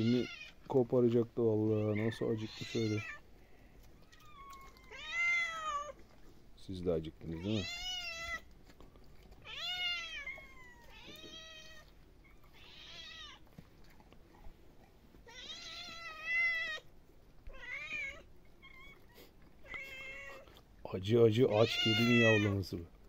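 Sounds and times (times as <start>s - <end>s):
cats meowing: 0.0s - 0.8s, 1.5s - 3.4s, 4.0s - 6.3s, 7.0s - 8.6s, 9.3s - 14.1s, 15.1s - 20.6s, 21.3s - 22.8s.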